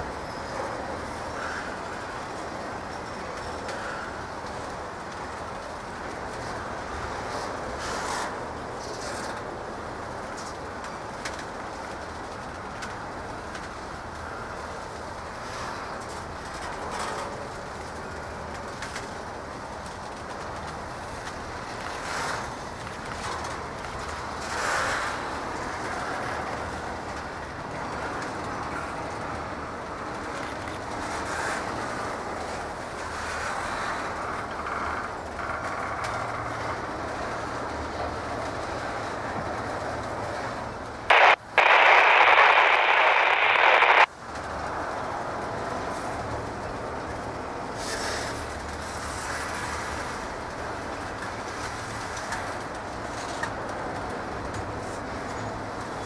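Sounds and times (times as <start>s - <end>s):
radio static burst: 41.1s - 44.1s.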